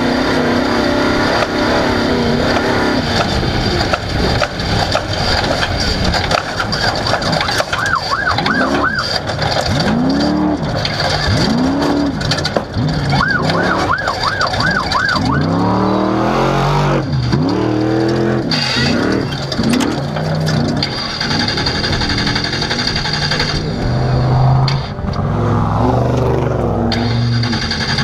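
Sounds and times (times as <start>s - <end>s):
rattle and road noise: 0.0s - 28.0s
truck engine revving: 0.0s - 28.0s
high warbling tone: 13.0s - 17.0s, 20.5s - 27.6s.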